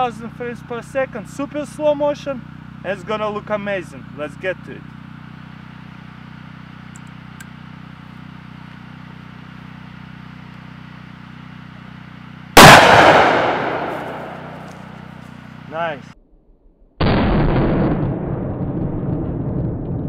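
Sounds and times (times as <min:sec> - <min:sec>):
pistol shot with echo: 0:12.6 - 0:15.0.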